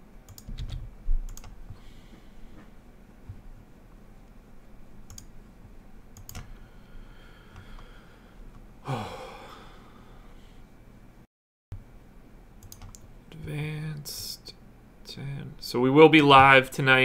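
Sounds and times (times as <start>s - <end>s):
computer mouse clicks: 0.2s - 1.6s, 5.1s - 5.3s, 6.2s - 6.5s, 12.6s - 13.1s
person sighing: 8.8s - 10.3s.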